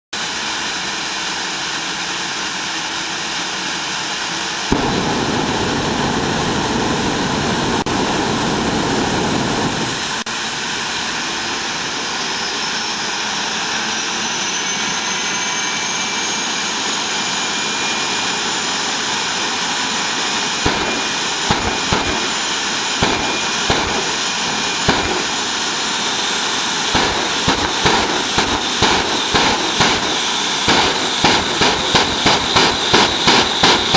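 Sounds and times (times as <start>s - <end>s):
turbine engine whine: 0.1s - 33.9s
sharp exhaust bangs: 4.7s - 7.9s, 20.6s - 33.9s
heavy low rumble: 4.7s - 10.2s, 20.7s - 33.9s.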